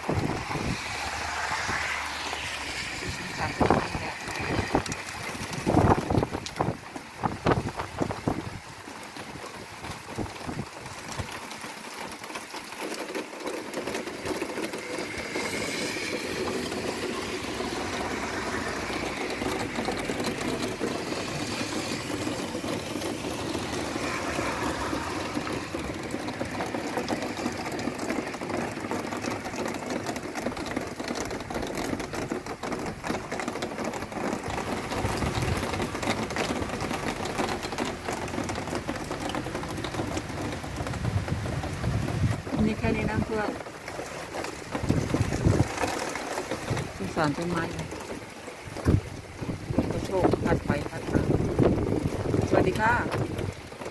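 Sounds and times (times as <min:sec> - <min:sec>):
wind gusts on microphone: 0:00.0 - 0:11.4, 0:34.4 - 0:37.2, 0:39.3 - 0:43.6, 0:44.6 - 0:48.0, 0:48.6 - 0:53.8
steady rain hiss: 0:00.0 - 0:53.9.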